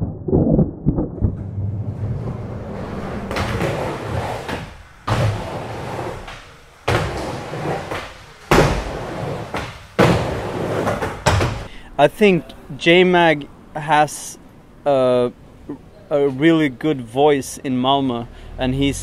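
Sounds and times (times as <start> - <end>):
skateboard slamming: 1.3 - 11.7
skateboard wheels rolling on concrete: 1.4 - 11.7.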